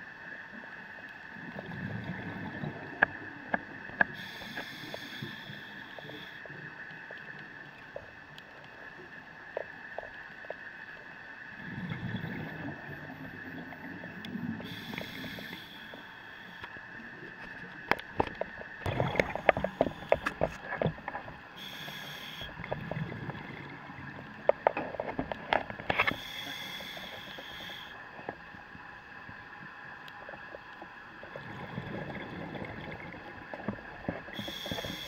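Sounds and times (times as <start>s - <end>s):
exhaled bubbles rumbling: 1.4s - 4.0s, 11.5s - 14.6s, 18.5s - 21.3s, 22.5s - 25.9s, 31.2s - 34.5s
regulator breathing hiss: 4.1s - 6.5s, 14.6s - 16.7s, 21.6s - 22.6s, 26.0s - 28.0s, 34.3s - 35.0s.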